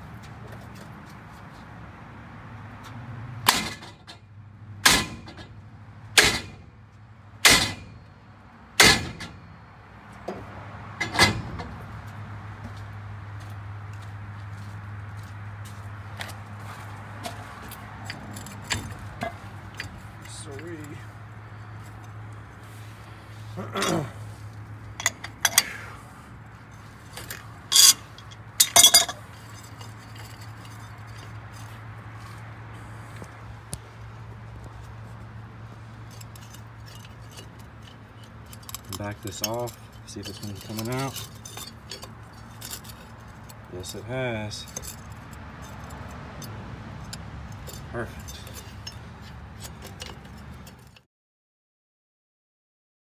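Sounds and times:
wrench clinking and scraping on bolt: 0:03.4 - 0:05.6, 0:10.2 - 0:11.9, 0:16.2 - 0:26.0, 0:26.6 - 0:33.9, 0:34.6 - 0:51.0.

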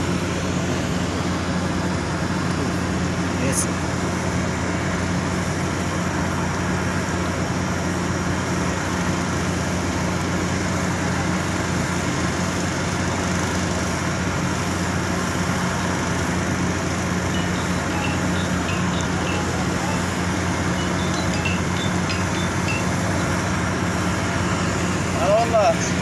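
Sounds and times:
distant road traffic roar: 0:00.0 - 0:26.0
low hum: 0:17.1 - 0:25.2.

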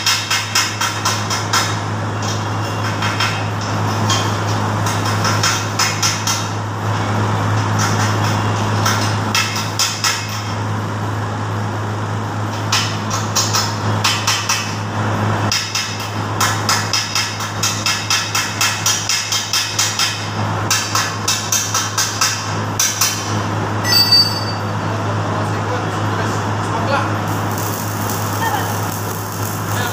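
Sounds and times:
welding arc crackling: 0:27.0 - 0:29.9.

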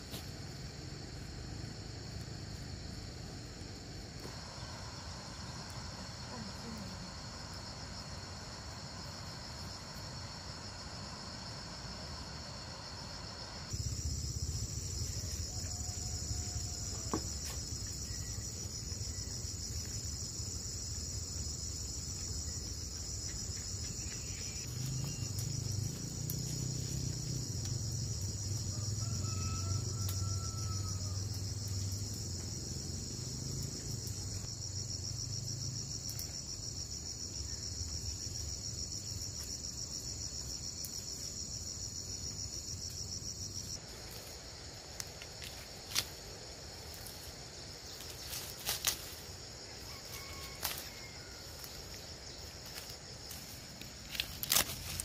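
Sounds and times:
insects chirring: 0:00.0 - 0:55.0.

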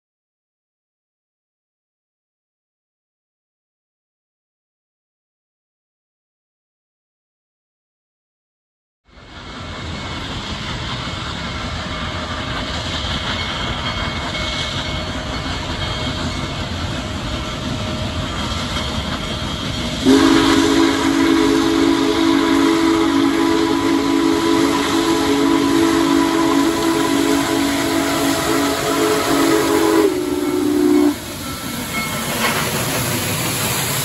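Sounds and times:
steam locomotive approaching: 0:09.1 - 0:34.0
chord steam whistle: 0:20.0 - 0:32.6.

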